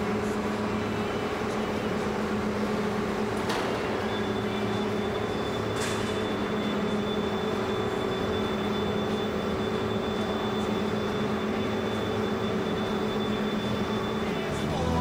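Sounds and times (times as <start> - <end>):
high machine whine: 0.0 - 15.0
machine mechanical hum: 0.0 - 15.0.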